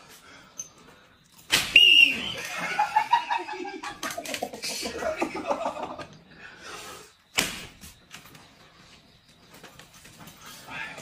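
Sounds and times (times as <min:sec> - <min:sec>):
sharp smack: 0:01.5 - 0:01.8, 0:07.3 - 0:07.8
men laughing: 0:02.2 - 0:06.3.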